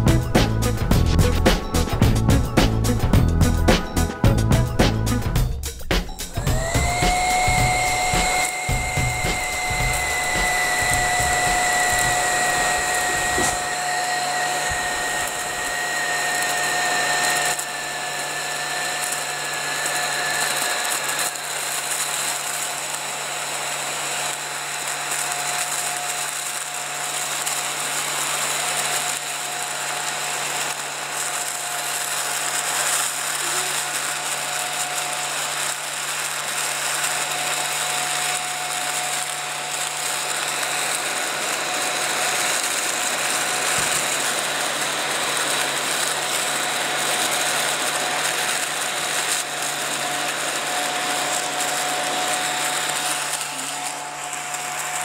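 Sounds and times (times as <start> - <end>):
high whistle: 6.2 - 21.4
small vacuum motor whining: 6.2 - 55.0.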